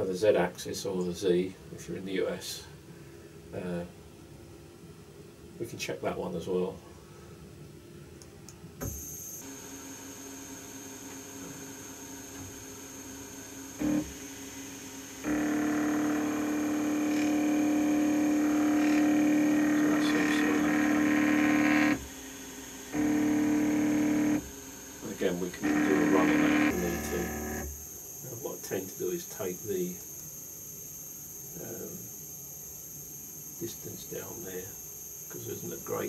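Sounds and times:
faint steady hum and whine: 0.0 - 36.0
stepper motor drone: 10.8 - 36.0.

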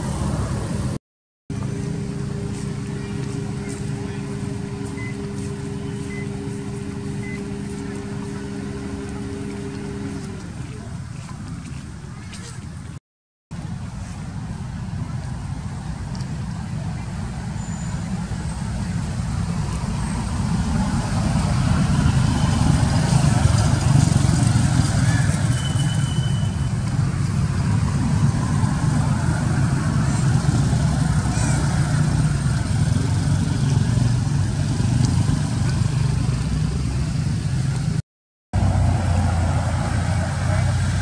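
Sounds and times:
steady low rumble: 0.0 - 25.5.

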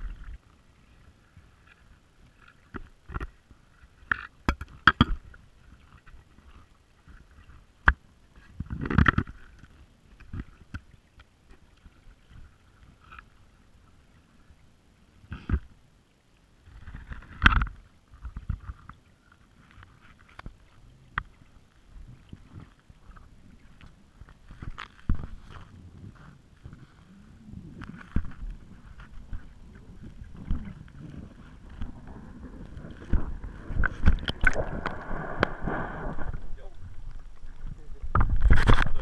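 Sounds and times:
rumbling scrape: 25.1 - 39.0
muffled underwater knocks: 32.7 - 39.0.

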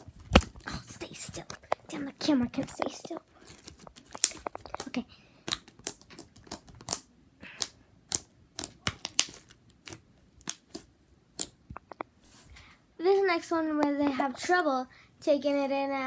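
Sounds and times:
slime clicking and popping: 3.7 - 12.1.

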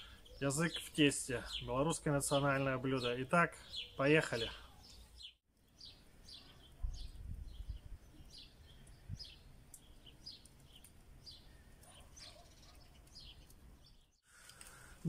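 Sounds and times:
songbirds chirping: 0.0 - 15.0.

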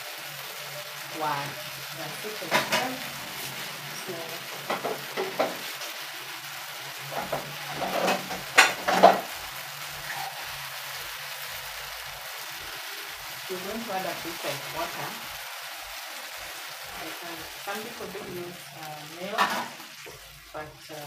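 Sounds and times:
sauce sizzling in a frying pan: 0.0 - 21.0
utensil scraping and knocking pan: 7.1 - 9.3.

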